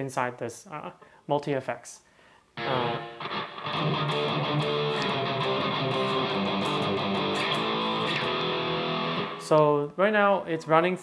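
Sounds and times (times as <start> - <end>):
distorted electric guitar: 2.6 - 9.6.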